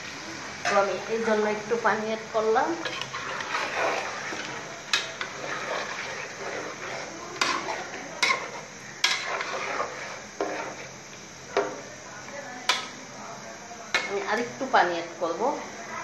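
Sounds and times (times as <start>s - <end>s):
spatula scraping through food: 2.7s - 11.0s.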